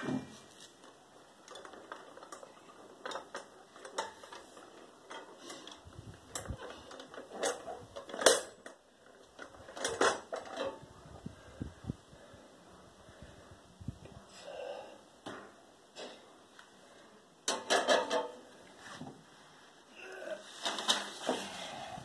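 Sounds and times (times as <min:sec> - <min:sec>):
metal clicks and clanks: 0:00.8 - 0:10.8, 0:17.4 - 0:18.4.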